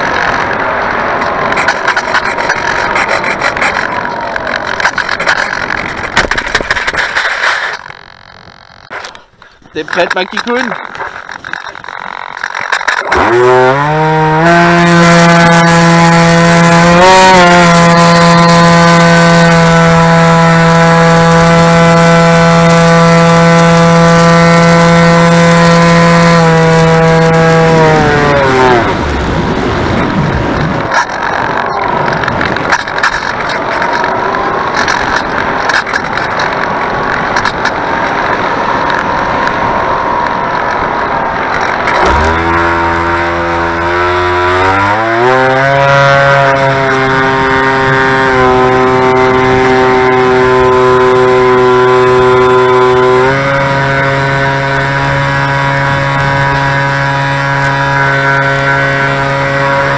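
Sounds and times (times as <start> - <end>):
wind rush: 0.0 - 8.0, 28.0 - 44.2
dense crackling clicks: 0.0 - 13.9, 28.8 - 45.3
airframe rattling: 0.0 - 39.3, 40.4 - 59.9
electric motor and propeller whine: 0.0 - 59.9.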